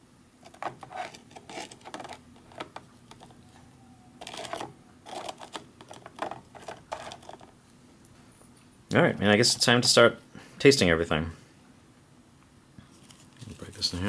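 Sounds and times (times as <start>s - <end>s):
knife scraping on cracker: 0.4s - 2.2s, 4.2s - 7.4s.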